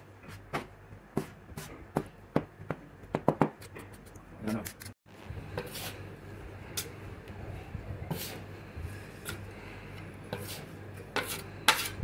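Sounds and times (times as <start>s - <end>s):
metal scraper scraping on stone: 10.3s - 12.0s.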